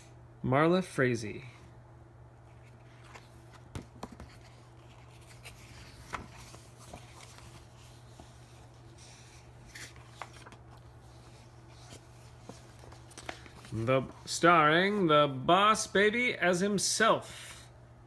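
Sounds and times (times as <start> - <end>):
low steady hum: 0.0 - 18.0
book pages rustling: 2.4 - 15.1.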